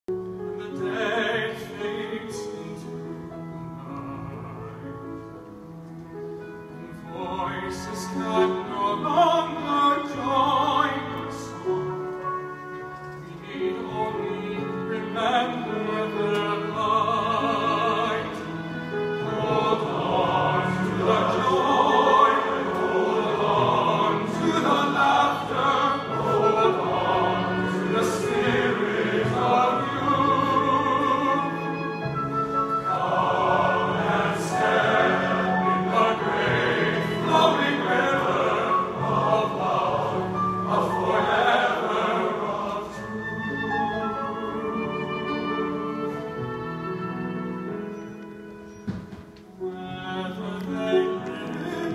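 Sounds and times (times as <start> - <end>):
men's choir holding chords: 6.6 - 48.0.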